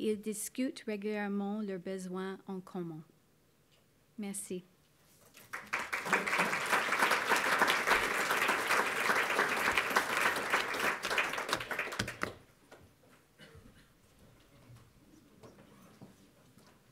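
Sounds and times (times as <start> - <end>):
audience applauding: 5.4 - 12.4.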